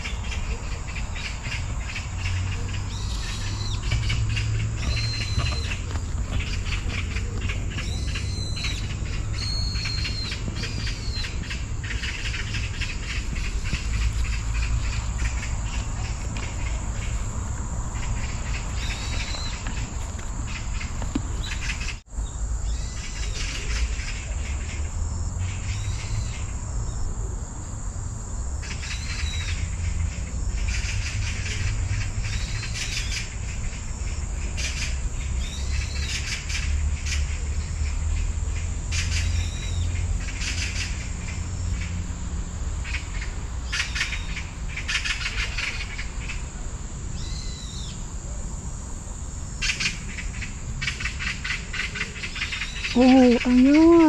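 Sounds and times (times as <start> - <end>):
bird chirps: 0.0 - 17.2, 18.0 - 24.4
insects chirring: 0.0 - 54.0.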